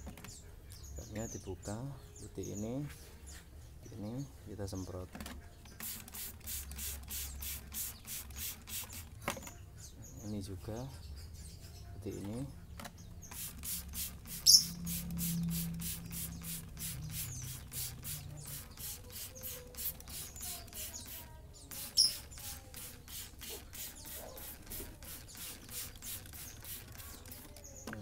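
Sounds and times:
spray bottle hissing: 5.8s - 9.2s, 13.2s - 27.7s.

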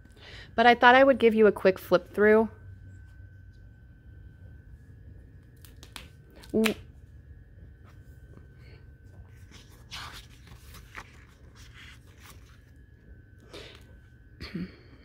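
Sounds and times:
low steady hum: 0.0s - 15.0s
paper pages rustling: 9.2s - 12.8s.

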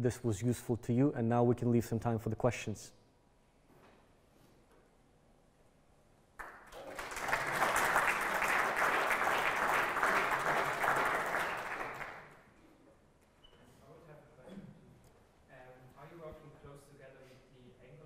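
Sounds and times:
audience applauding: 6.4s - 12.4s.

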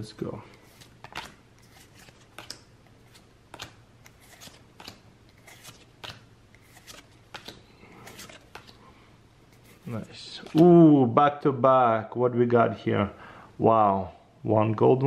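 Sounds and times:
cards flicking and sliding: 0.6s - 8.8s.

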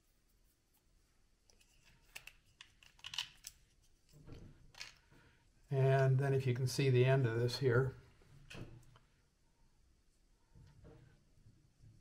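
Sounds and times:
plastic parts clicking and rustling: 1.5s - 5.2s.

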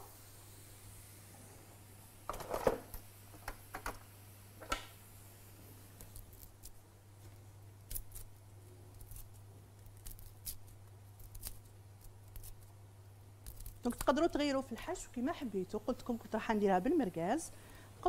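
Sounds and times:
faint low hum: 0.0s - 18.0s.

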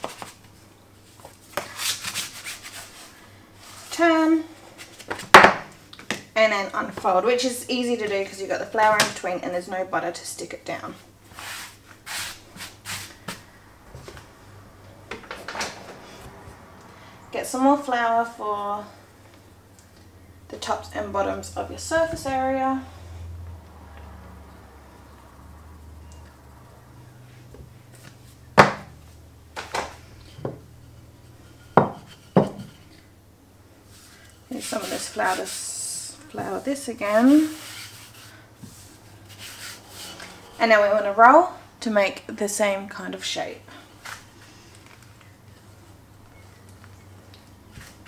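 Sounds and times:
kitchen tools knocking on stone countertop: 31.7s - 32.8s
hands rustling pastry dough: 33.8s - 40.5s.

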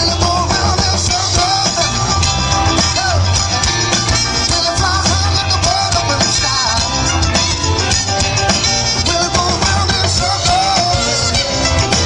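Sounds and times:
man singing: 0.0s - 7.4s, 8.8s - 12.0s
electric guitars: 0.0s - 12.0s
live rock band playing: 0.0s - 12.0s.

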